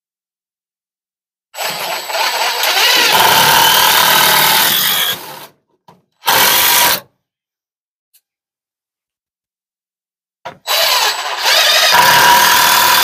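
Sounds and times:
power drill running: 1.6s - 5.5s, 6.3s - 7.0s, 10.7s - 13.0s.

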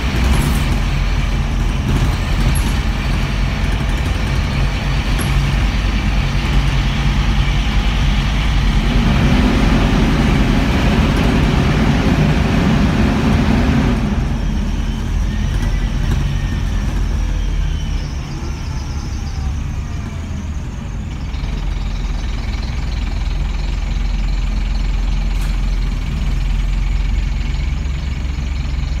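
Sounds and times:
broad rushing noise: 0.0s - 16.8s
bus engine running: 0.0s - 29.0s
faint falling whines: 0.0s - 29.0s.

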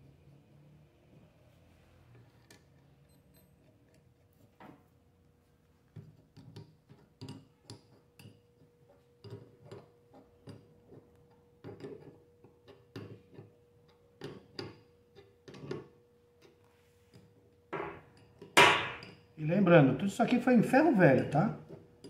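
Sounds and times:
small metal clicks and knocks: 5.9s - 17.4s.

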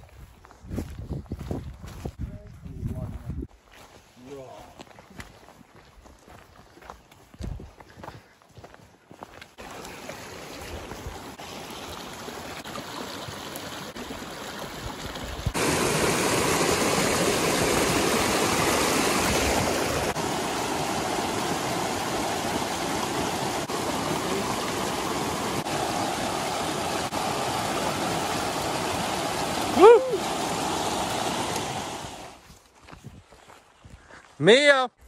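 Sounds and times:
rushing mountain stream: 9.2s - 32.6s.

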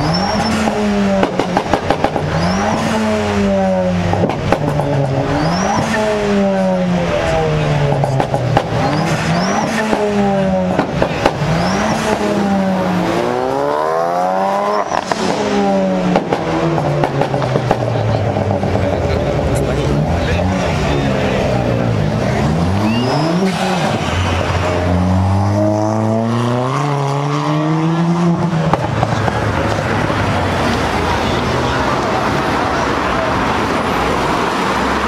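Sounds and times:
car engine revving: 0.0s - 35.0s.

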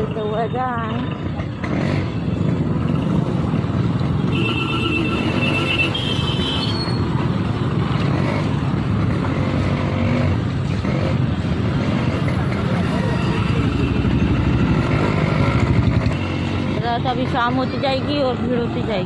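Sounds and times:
motorcycle engines running: 0.0s - 19.0s.

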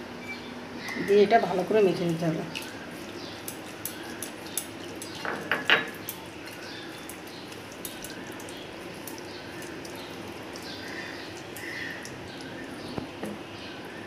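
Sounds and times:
soft squelching: 0.8s - 5.2s.

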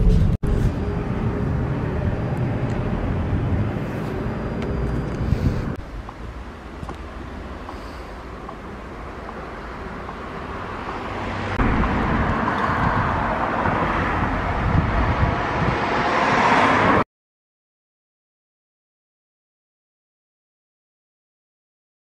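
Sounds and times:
street traffic: 0.0s - 17.0s
wind on microphone: 11.6s - 17.0s.

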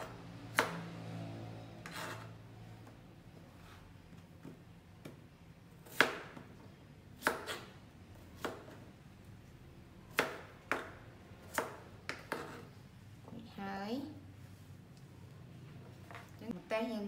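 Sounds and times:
knife chopping on plastic board: 5.8s - 6.5s, 7.2s - 7.7s, 8.4s - 8.8s, 10.1s - 12.7s.

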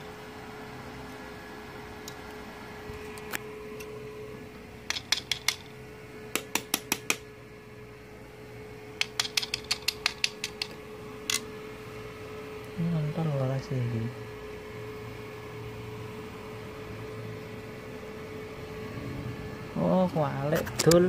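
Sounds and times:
steady hum: 0.0s - 21.0s
electrode tapping on tile: 4.9s - 5.7s, 9.0s - 10.8s.

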